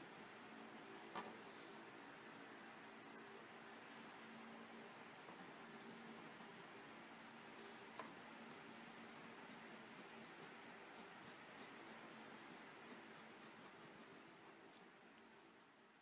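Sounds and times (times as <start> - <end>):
pencil scratching on sanded paper: 5.7 - 7.3, 8.5 - 14.8.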